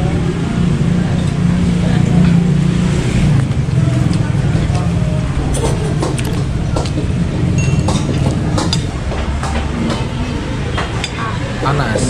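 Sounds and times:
low engine rumble: 0:00.0 - 0:12.0
cutlery clinking on plates: 0:05.5 - 0:10.1.

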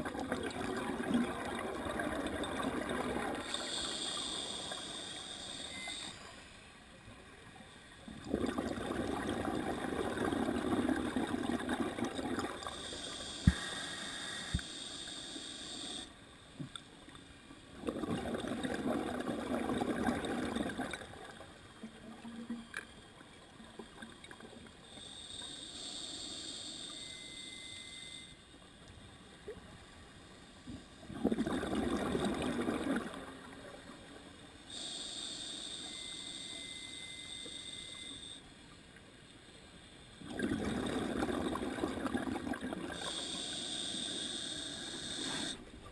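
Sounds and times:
exhaled bubbles rushing: 0:00.0 - 0:03.4, 0:08.2 - 0:12.7, 0:17.8 - 0:21.4, 0:31.1 - 0:33.5, 0:40.2 - 0:43.0
regulator hissing inhale: 0:03.4 - 0:06.4, 0:12.7 - 0:16.1, 0:24.9 - 0:27.6, 0:34.6 - 0:38.4, 0:43.0 - 0:45.7.

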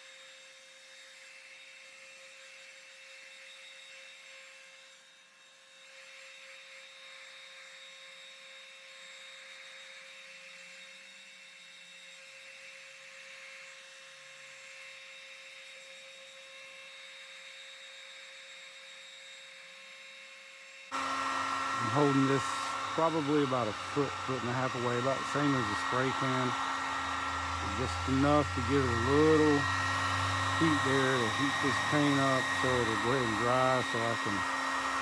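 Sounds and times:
heat gun fan hiss and whine: 0:00.0 - 0:35.0.

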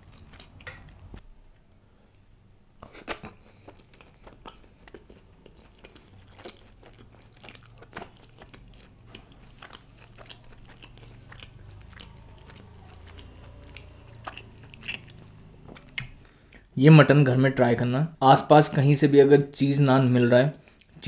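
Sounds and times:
chewing with wet mouth smacks: 0:00.0 - 0:01.2, 0:02.7 - 0:16.7
steady low hum: 0:00.0 - 0:16.8.

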